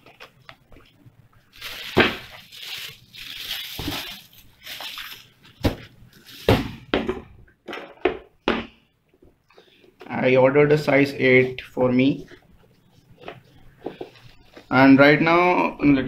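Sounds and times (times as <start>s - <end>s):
tissue paper rustling: 1.5s - 6.6s.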